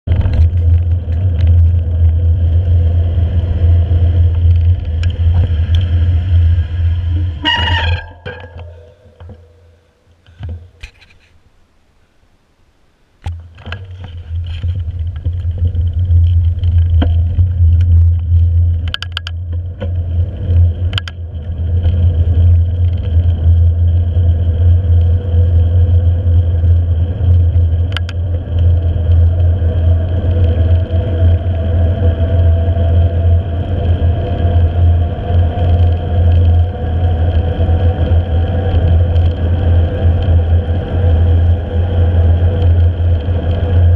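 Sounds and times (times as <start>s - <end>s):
faint rising whine: 0.1s - 10.8s
clicks and rattles: 13.2s - 22.1s.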